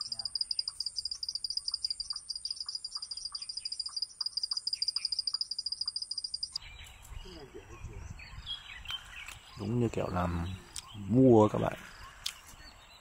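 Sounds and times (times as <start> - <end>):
insects trilling in pulses: 0.0 - 6.6.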